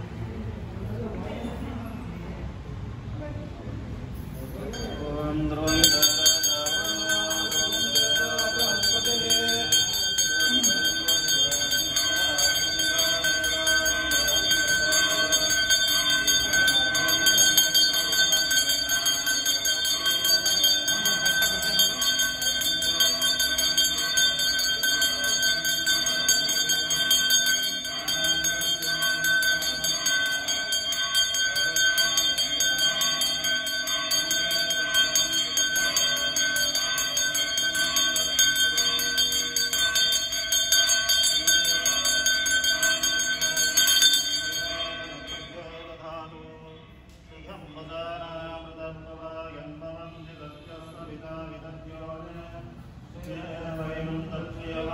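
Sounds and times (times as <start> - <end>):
brass hand bell ringing: 4.7 - 45.9.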